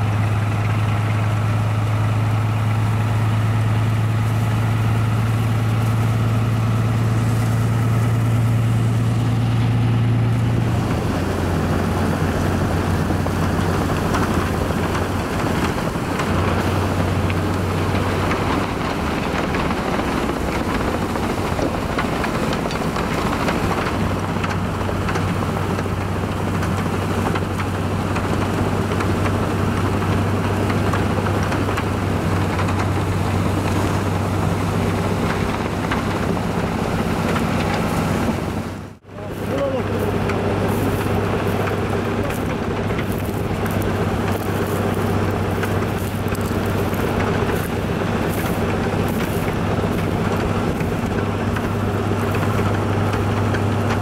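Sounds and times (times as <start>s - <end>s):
diesel locomotive engine drone: 0.0s - 54.0s
rushing of thrown snow: 39.2s - 54.0s.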